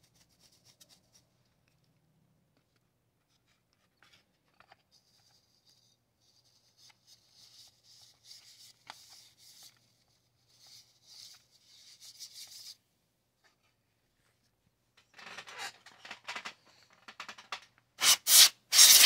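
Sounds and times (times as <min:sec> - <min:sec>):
plastic clicks: 0:15.0 - 0:17.8.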